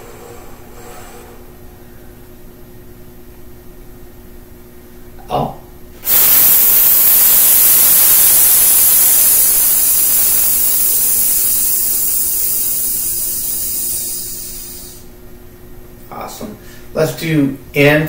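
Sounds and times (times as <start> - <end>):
man hissing breath: 6.0 - 15.1.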